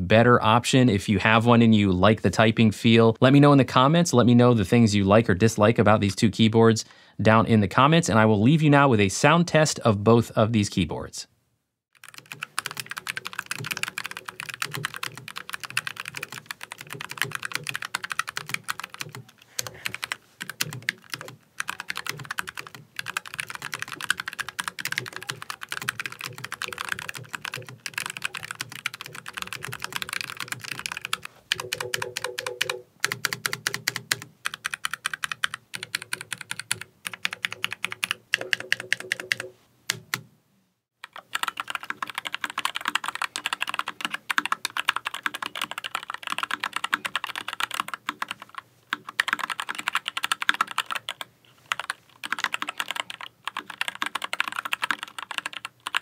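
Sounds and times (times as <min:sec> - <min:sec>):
mechanical keyboard typing: 0:12.0 - 0:40.2, 0:41.0 - 0:56.0.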